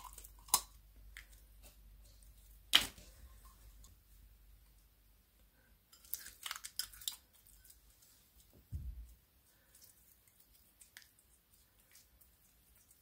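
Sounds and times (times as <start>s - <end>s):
soft low thud: 8.7s - 9.1s.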